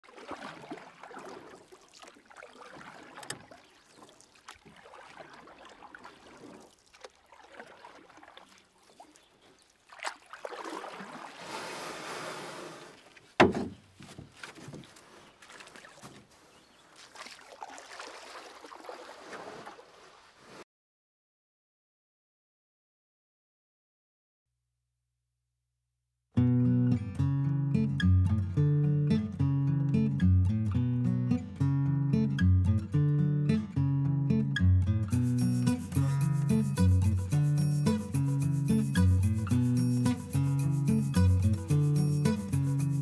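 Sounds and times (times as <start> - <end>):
water washing and trickling: 0.0 - 20.6.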